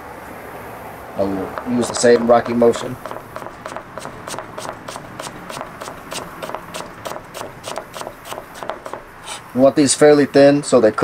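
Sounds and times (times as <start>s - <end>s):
knife chopping cabbage on board: 1.5s - 9.4s.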